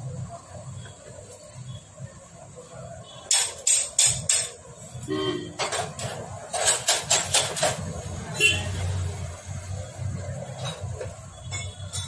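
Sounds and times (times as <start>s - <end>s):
metal tools tapping on engine: 3.3s - 4.7s, 5.5s - 8.0s, 10.5s - 12.0s.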